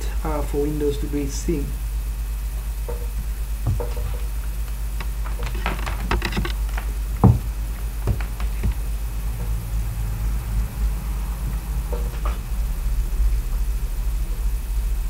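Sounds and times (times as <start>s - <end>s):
low electrical hum: 0.0s - 15.0s
loud knock: 2.9s - 4.3s, 7.2s - 8.9s.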